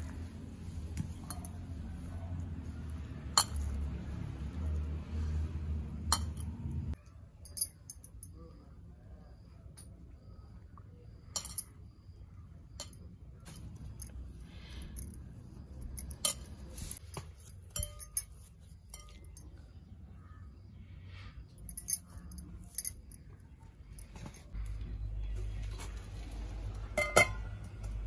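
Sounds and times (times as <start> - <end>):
metal bangles clinking on glass bowl: 1.1 - 2.0, 3.2 - 4.0, 6.1 - 8.5, 11.3 - 11.8, 12.8 - 19.6, 21.6 - 24.6, 27.0 - 27.6.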